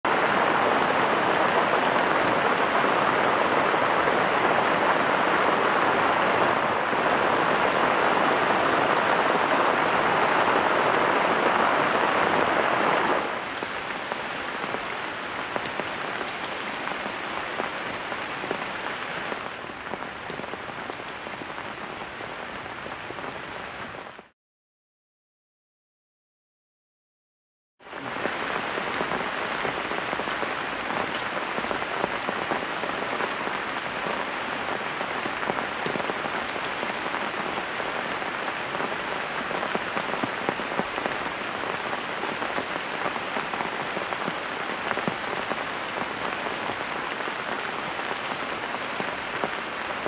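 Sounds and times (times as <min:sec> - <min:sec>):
heavy rain hissing: 0:00.2 - 0:24.3.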